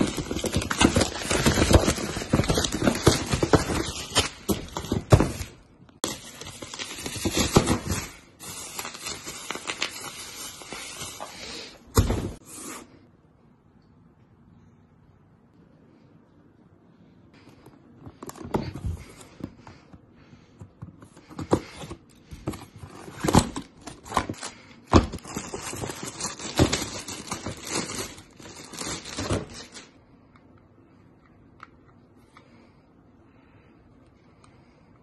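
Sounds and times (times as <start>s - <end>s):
plastic crinkling: 0.0s - 11.7s, 23.2s - 29.9s.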